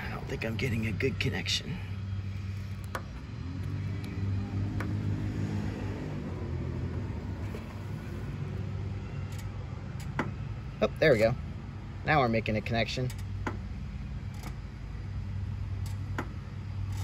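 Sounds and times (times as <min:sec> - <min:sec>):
vehicle engine rumbling: 0:00.0 - 0:17.0.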